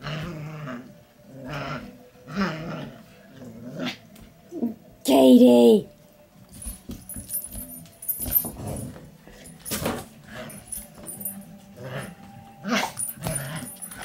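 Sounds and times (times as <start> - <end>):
puppy growling: 0.0 - 4.8, 11.8 - 14.0.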